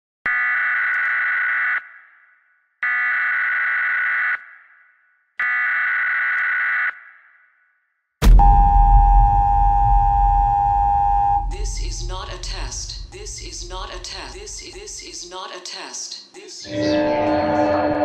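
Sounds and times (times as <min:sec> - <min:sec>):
alarm tone blasts with echo: 0:08.2 - 0:14.8, 0:16.7 - 0:18.0
sudden loud hit: 0:08.2 - 0:14.8.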